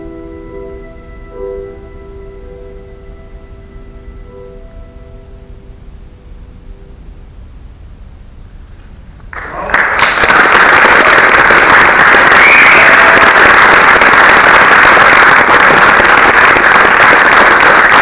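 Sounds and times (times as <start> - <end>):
audience applause: 9.3 - 18.0.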